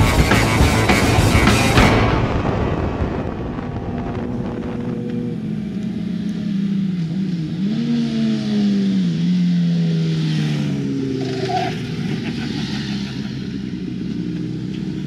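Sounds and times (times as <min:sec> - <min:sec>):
motorcycle engines at speed: 0:00.0 - 0:02.1, 0:03.7 - 0:15.0.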